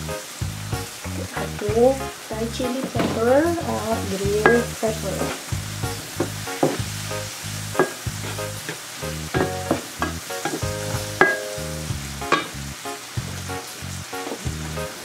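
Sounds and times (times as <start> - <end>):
vegetables sizzling in a frying pan: 0.0 - 15.0
spatula stirring and scraping: 2.8 - 11.5
spatula knocking against pan: 4.4 - 5.4, 6.2 - 6.8, 7.8 - 8.0, 9.4 - 11.5, 12.3 - 12.6.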